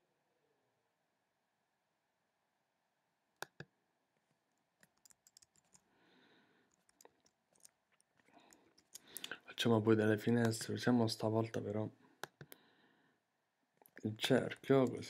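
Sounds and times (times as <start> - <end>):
computer mouse clicks: 3.4 - 3.7, 4.8 - 5.8, 12.2 - 12.6.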